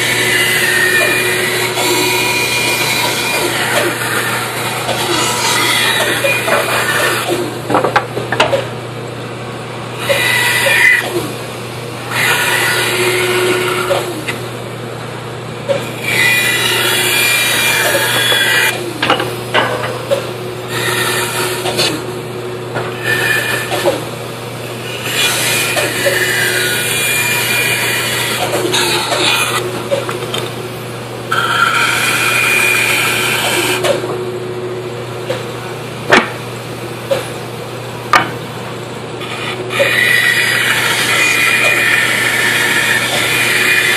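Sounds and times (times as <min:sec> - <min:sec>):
saw blade cutting wood: 0:00.0 - 0:07.5, 0:10.0 - 0:11.3, 0:12.1 - 0:14.4, 0:16.0 - 0:18.8, 0:19.7 - 0:22.0, 0:22.9 - 0:24.1, 0:24.8 - 0:30.1, 0:31.3 - 0:34.0, 0:39.2 - 0:43.9
band saw motor hum: 0:00.0 - 0:07.8, 0:09.9 - 0:36.0, 0:36.7 - 0:43.9.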